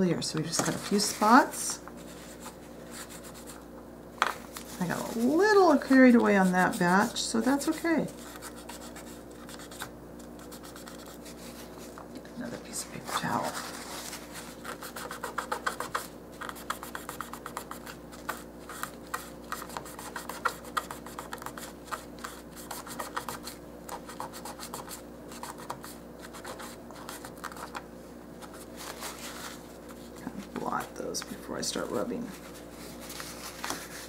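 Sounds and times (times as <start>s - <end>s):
paper towel scratchy rubbing: 4.6s - 9.8s, 12.7s - 27.7s, 28.4s - 31.0s, 31.7s - 34.0s.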